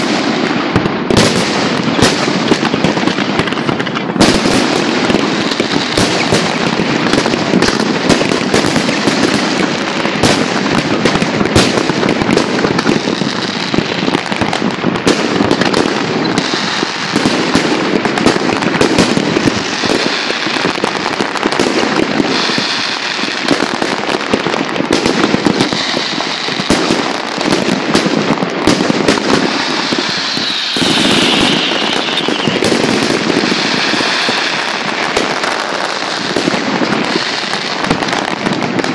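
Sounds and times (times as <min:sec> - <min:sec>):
fireworks bangs and crackling: 0:00.0 - 0:38.9
falling firework whistle: 0:29.1 - 0:36.4.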